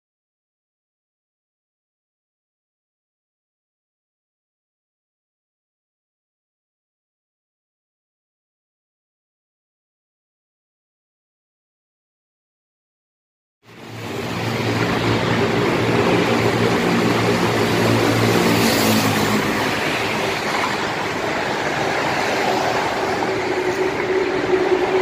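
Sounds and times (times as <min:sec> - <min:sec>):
tanker truck passing: 0:13.8 - 0:25.0
motorcycle passing: 0:14.4 - 0:21.6.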